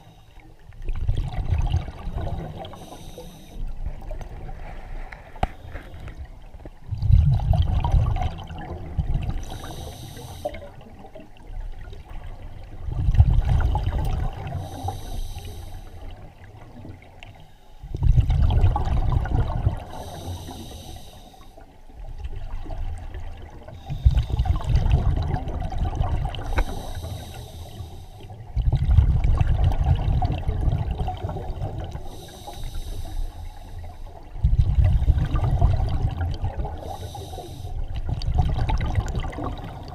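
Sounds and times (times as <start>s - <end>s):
diver inhaling through regulator: 2.2s - 3.8s, 9.4s - 10.8s, 14.5s - 16.1s, 19.8s - 21.6s, 23.8s - 24.8s, 26.4s - 28.4s, 31.2s - 34.2s, 36.7s - 37.9s.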